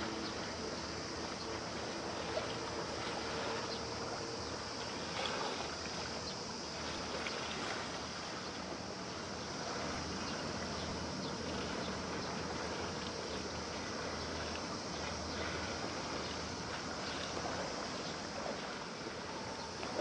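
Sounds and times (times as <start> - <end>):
ship engine drone: 0.0 - 20.0
water rushing at ship bow: 0.0 - 20.0.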